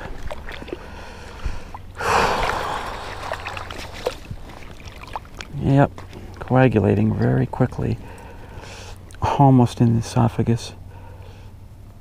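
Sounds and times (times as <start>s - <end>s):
water splashing and sloshing: 0.0s - 9.6s.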